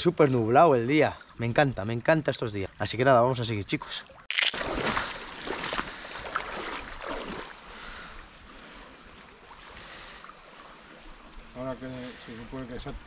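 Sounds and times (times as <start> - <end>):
river water running over stones: 4.3 - 7.7.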